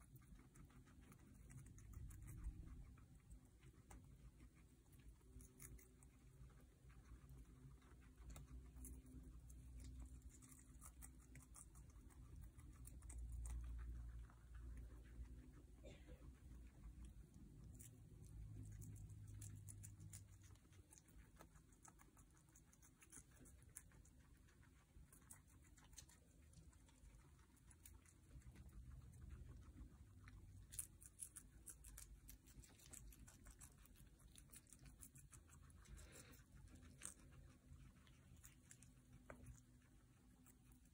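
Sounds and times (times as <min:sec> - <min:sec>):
guinea pigs chewing: 0:00.0 - 0:40.9.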